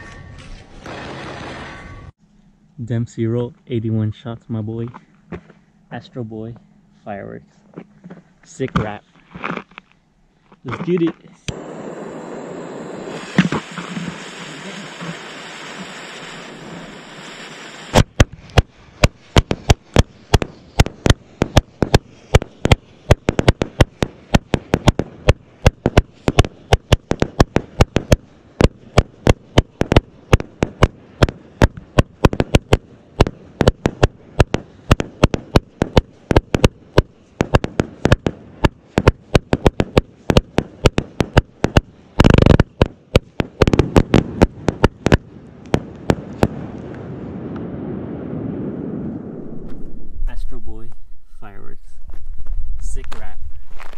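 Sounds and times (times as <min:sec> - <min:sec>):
fireworks bangs: 0:11.5 - 0:53.9.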